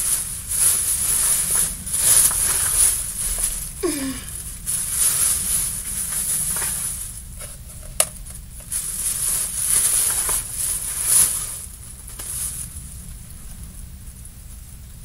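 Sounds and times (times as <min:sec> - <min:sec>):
bag rustling: 0:00.0 - 0:07.3, 0:08.7 - 0:12.7.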